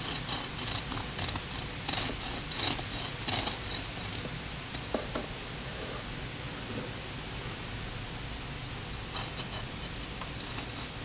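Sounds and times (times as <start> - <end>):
bread knife sawing through loaf: 0.0 - 4.3.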